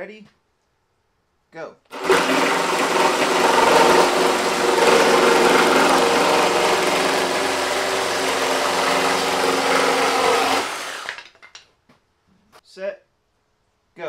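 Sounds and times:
reciprocating saw cutting wood: 1.9 - 11.3.

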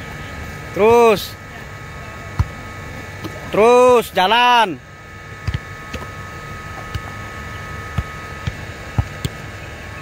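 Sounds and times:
steady background hum: 0.0 - 10.0
football thuds on grass: 2.3 - 2.6, 5.4 - 6.1, 7.9 - 9.4.

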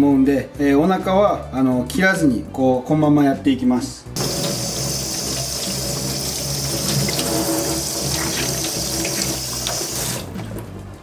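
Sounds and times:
tap water running into a sink: 4.2 - 10.6
water splashing over hands: 6.7 - 10.3.

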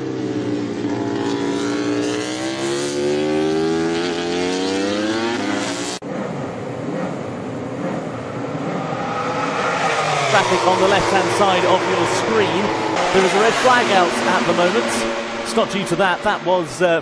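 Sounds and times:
motorcycle engine accelerating: 0.0 - 17.0
rough noisy engine: 5.3 - 17.0.

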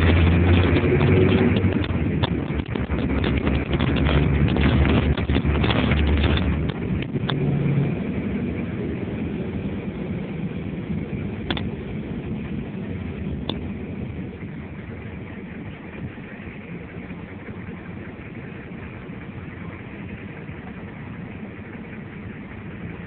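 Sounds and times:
vehicle engine and road rumble: 0.0 - 23.0
sharp clicks: 11.4 - 11.8.

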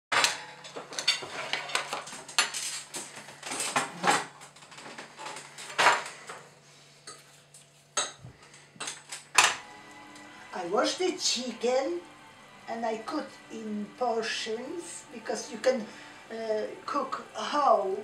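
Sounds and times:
dishes and cutlery clattering: 0.1 - 6.2.

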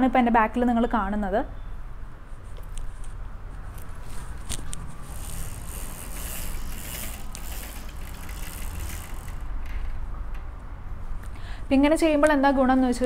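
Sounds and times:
blind cord and cloth rustling: 2.5 - 10.0.

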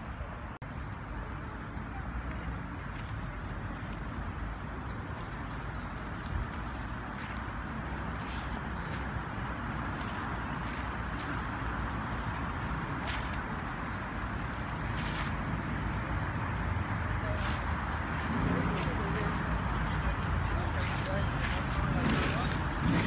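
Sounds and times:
distant city traffic rumble: 0.0 - 23.0.

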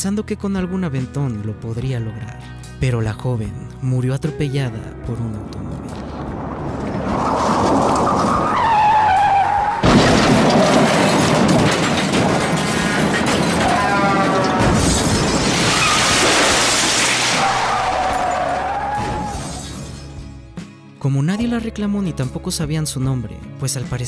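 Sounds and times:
car crash: 5.5 - 20.2
tyre screech: 7.1 - 9.8.

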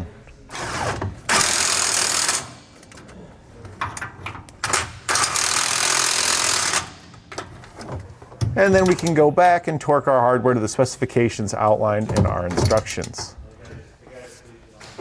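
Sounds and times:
power wrench running: 0.5 - 2.6, 4.6 - 7.0.

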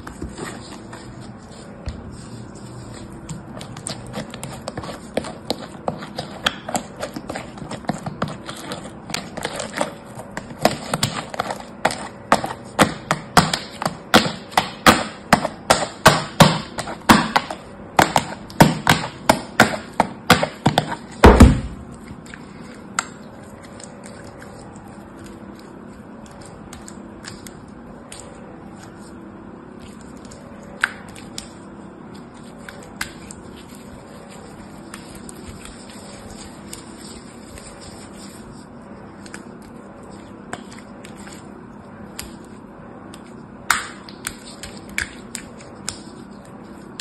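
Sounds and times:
soft handling of slime: 0.0 - 12.8, 21.8 - 43.5
loud slime squelch: 0.0 - 47.0.

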